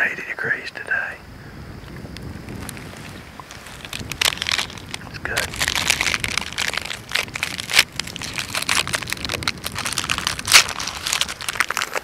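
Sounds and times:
plastic wrapper crinkling: 2.7s - 12.0s.

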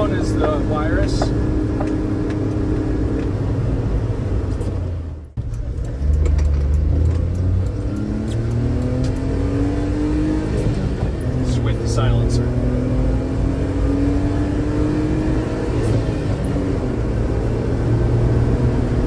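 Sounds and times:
truck engine and exhaust drone: 0.0s - 19.0s.

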